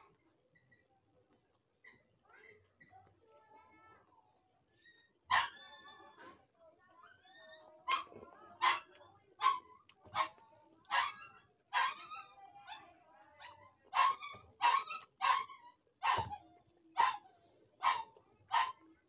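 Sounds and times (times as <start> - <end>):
dog barking: 5.3 - 6.3, 7.0 - 16.4, 17.0 - 18.9.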